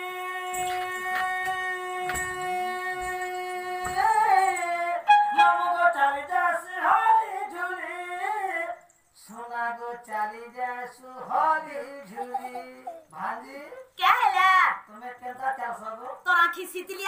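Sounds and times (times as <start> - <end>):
steady held tone: 5.1 - 6.0.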